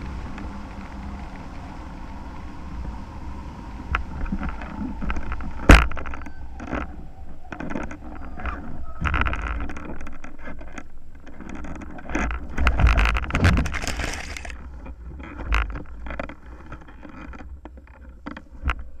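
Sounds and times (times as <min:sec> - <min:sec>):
wind buffeting camera: 0:00.0 - 0:19.0
frame scraping and knocking on grass: 0:03.9 - 0:18.8.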